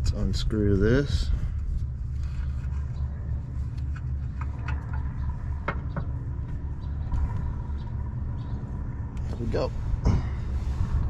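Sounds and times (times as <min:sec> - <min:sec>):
low rumble with faint hum: 0:00.0 - 0:11.0
hose fitting clicks and scrapes: 0:02.2 - 0:05.9.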